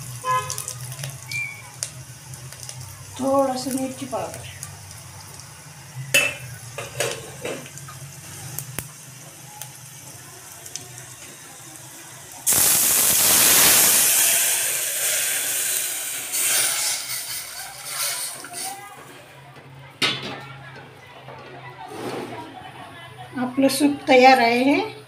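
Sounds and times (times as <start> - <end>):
liquid sizzling in hot oil: 0.0 - 18.8.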